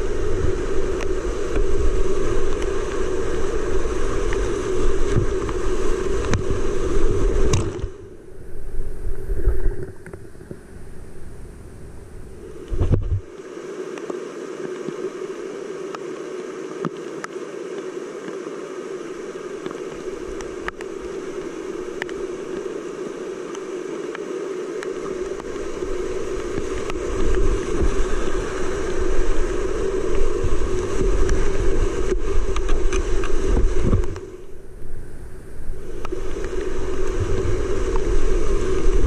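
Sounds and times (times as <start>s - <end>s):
water splashing ticks: 0.8s - 6.6s, 13.9s - 15.2s, 15.8s - 34.4s, 35.9s - 39.0s
wind buffeting microphone: 24.9s - 39.0s.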